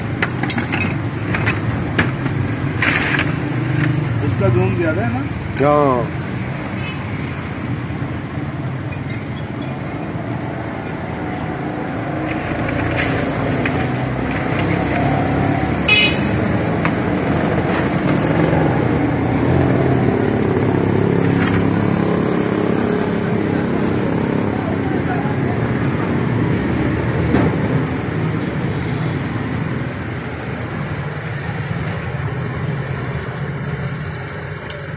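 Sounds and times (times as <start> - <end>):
motorcycle and car engines passing: 0.0 - 34.9
high-pitched horn toot: 15.9 - 16.4.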